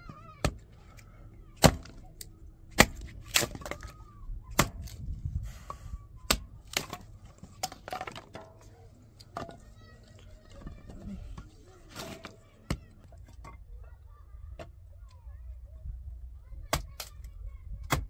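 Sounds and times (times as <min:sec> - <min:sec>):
hatchet chopping firewood: 0:00.4 - 0:00.7, 0:01.6 - 0:09.6, 0:16.7 - 0:17.2.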